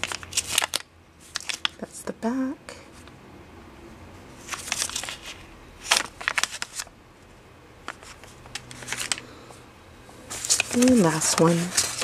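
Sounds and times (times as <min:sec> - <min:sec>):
plastic packaging crinkling and clicking: 0:00.0 - 0:01.8, 0:04.5 - 0:06.9, 0:07.8 - 0:09.3, 0:10.3 - 0:12.0.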